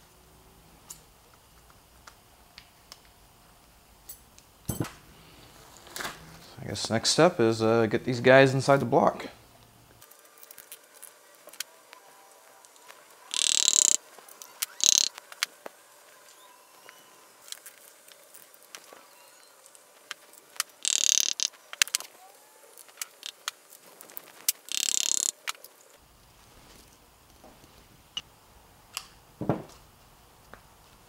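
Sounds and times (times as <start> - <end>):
short harsh noises: 13.3 - 14.0, 14.6 - 15.1, 20.8 - 21.6.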